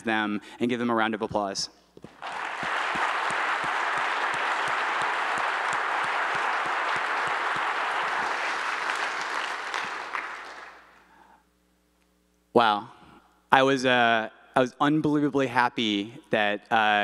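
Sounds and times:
audience applauding: 2.1s - 11.1s.

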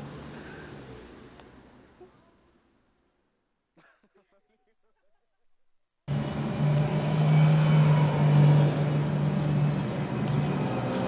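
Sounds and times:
loud engine-like drone: 6.1s - 11.0s.

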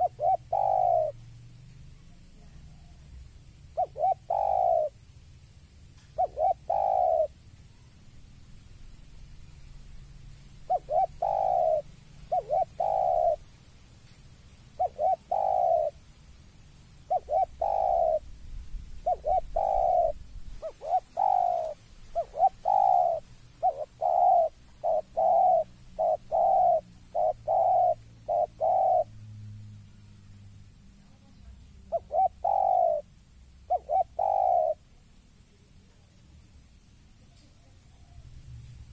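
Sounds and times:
dove cooing: 0.0s - 1.2s, 2.0s - 5.0s, 6.1s - 7.4s, 10.6s - 13.5s, 14.7s - 16.0s, 17.0s - 18.3s, 19.0s - 29.3s, 31.0s - 36.1s.

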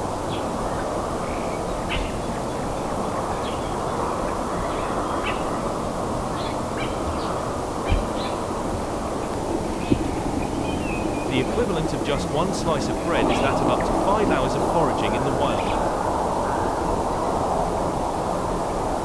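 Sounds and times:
steady rushing noise: 0.0s - 19.0s
birds chirping: 0.2s - 17.3s.

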